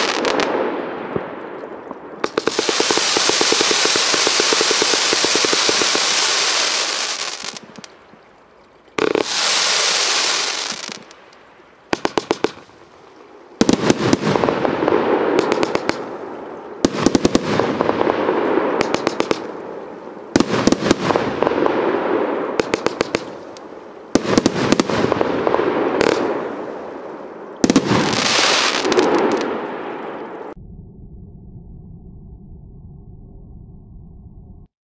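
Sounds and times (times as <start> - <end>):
firework crackling hiss: 2.2 - 7.9, 9.0 - 11.2, 27.6 - 29.6.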